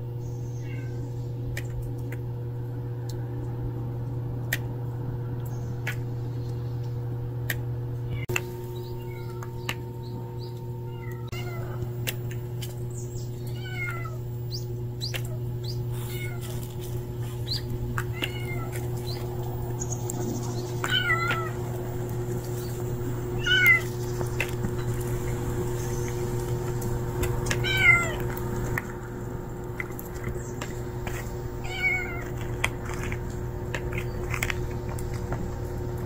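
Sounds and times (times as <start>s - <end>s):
steady low hum: 0.0s - 36.0s
cat meowing: 9.0s - 9.4s, 10.9s - 11.8s, 13.6s - 14.2s, 16.0s - 16.7s, 18.1s - 18.8s, 20.8s - 21.6s, 23.4s - 23.9s, 27.5s - 28.2s, 31.6s - 32.4s.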